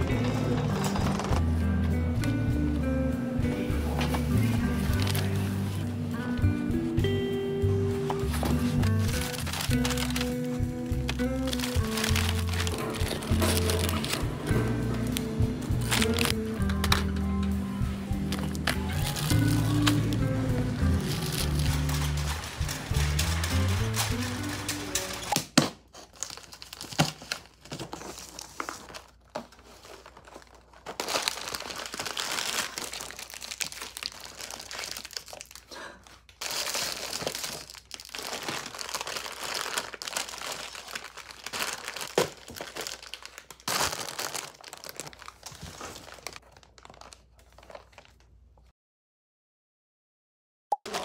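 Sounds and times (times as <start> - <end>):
plastic wrappers rustling: 3.7 - 6.2, 8.0 - 48.7
packing paper crinkling: 3.9 - 6.0, 8.1 - 17.2, 18.3 - 48.7.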